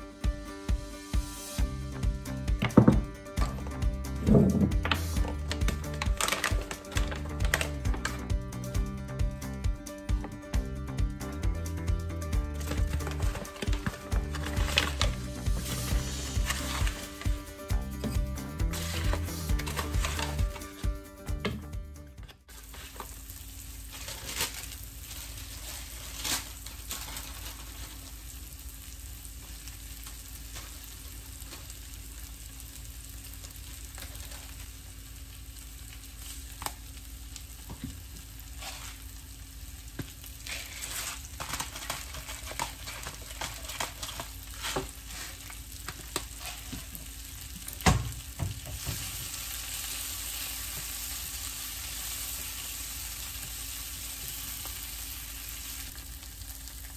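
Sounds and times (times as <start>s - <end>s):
vegetables sizzling in oil: 12.7s - 17.9s, 18.7s - 20.6s, 22.5s - 56.9s
chopsticks scraping pan: 38.6s - 39.0s.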